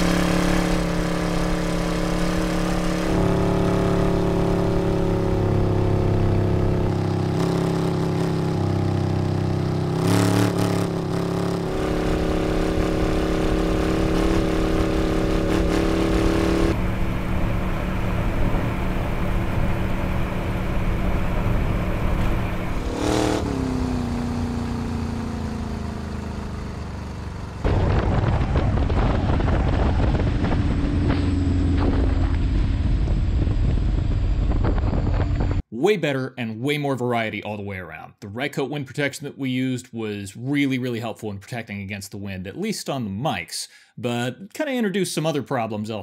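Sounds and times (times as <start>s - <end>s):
vehicle engine running: 0.0s - 35.6s.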